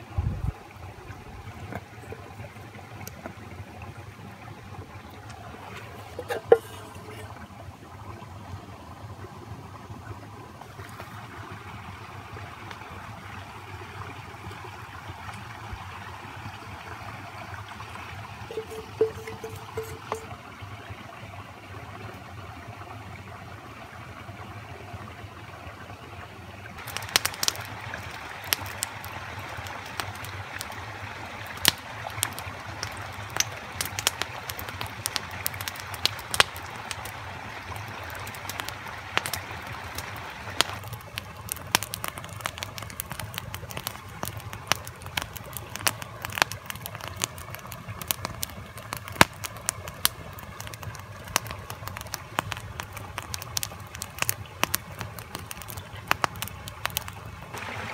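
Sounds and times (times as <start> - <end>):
soft steady hiss: 0.0 - 57.9
campfire crackling and popping: 5.0 - 7.5, 18.5 - 20.3, 26.8 - 57.9.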